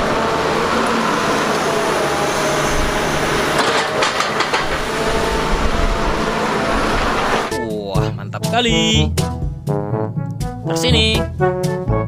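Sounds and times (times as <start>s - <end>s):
excavator running: 0.0s - 8.2s.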